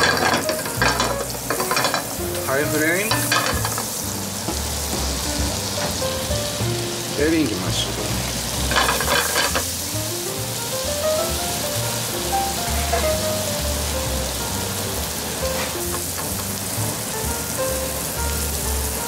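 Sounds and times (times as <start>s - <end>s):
background music with low bass: 0.0s - 19.0s
mushrooms sizzling in a pan: 0.0s - 19.0s.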